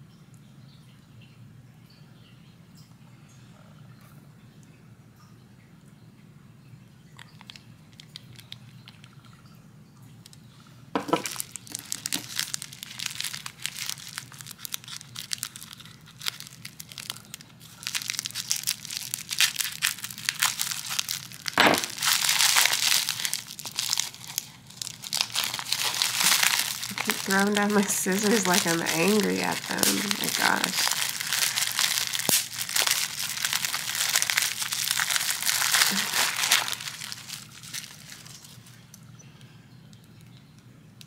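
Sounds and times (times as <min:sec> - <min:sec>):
bubble wrap crinkling: 0:07.2 - 0:09.3, 0:11.0 - 0:39.0
scissors snipping bubble wrap: 0:11.0 - 0:38.6.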